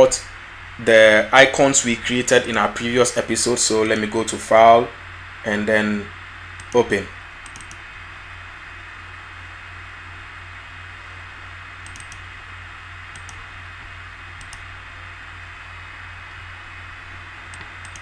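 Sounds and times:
background hiss: 0.0 - 18.0
low electrical hum: 0.0 - 18.0
computer mouse clicking: 6.6 - 6.8, 7.4 - 7.8, 11.8 - 12.2, 13.1 - 13.5, 14.4 - 14.7, 17.5 - 18.0.

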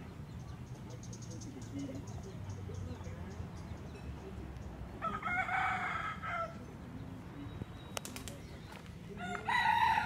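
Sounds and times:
rooster crowing: 5.0 - 6.6, 9.2 - 10.0.

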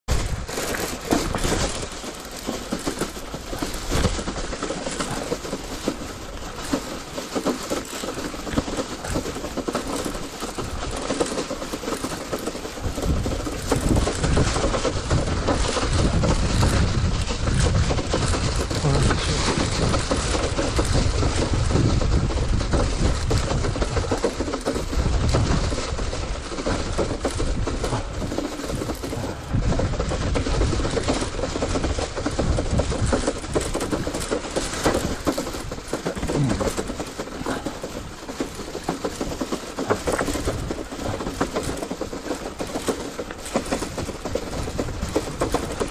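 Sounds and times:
bicycle rattling over rough track: 0.0 - 45.9
basket and frame shaking: 0.1 - 45.9
tyres crunching on ground: 0.1 - 45.9
heavy low rumble: 16.1 - 23.6.

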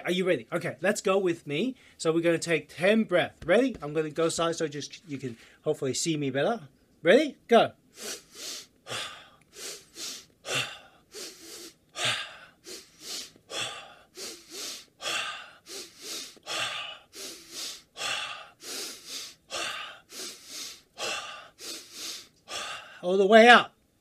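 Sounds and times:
man breathing forcefully: 7.9 - 23.0.

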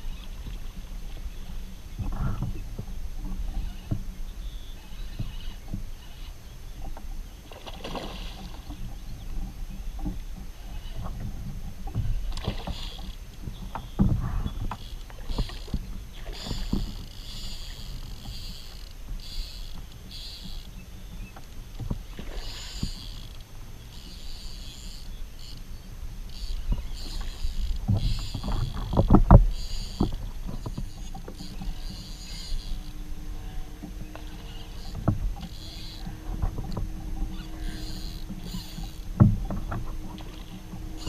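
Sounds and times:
water and wind rumble: 0.0 - 41.0
fishing reel buzzing: 3.6 - 6.3, 12.3 - 13.2, 14.5 - 20.8, 22.2 - 41.0
water splashes: 7.4 - 8.9.

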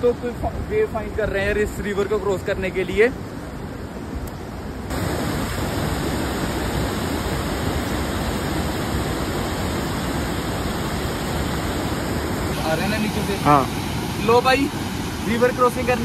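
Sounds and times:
river water rushing: 4.6 - 16.0.

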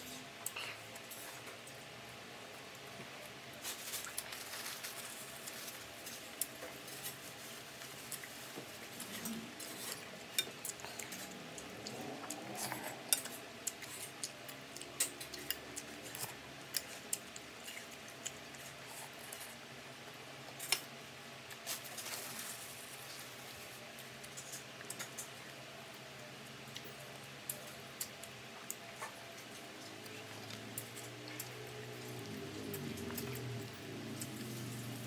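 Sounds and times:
chewing: 2.6 - 19.6, 26.6 - 35.0.

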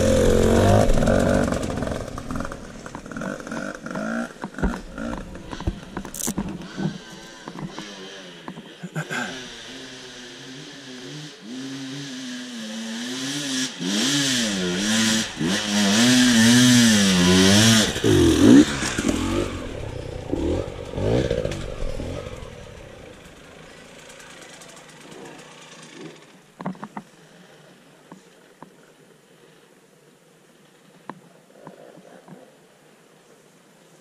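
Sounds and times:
dirt bike engine revving: 0.0 - 26.3.

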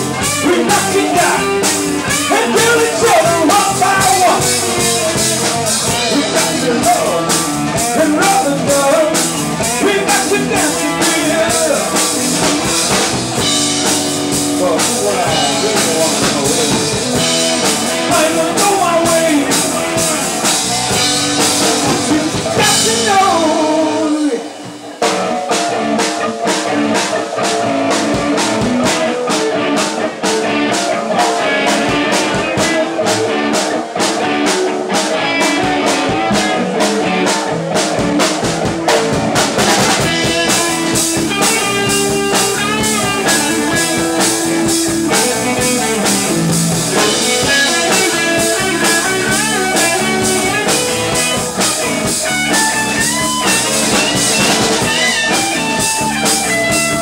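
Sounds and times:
lead electric guitar bending notes: 0.0 - 57.0
live rock band playing: 0.0 - 57.0.

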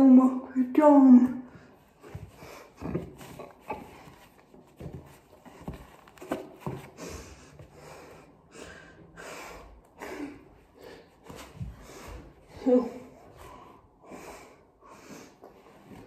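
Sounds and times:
soft knocks and rustles: 1.9 - 7.0.

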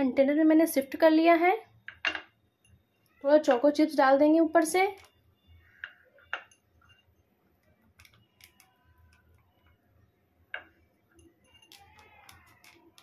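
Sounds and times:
chocolate chips clicking in glass bowl: 7.9 - 9.4, 10.6 - 13.0.

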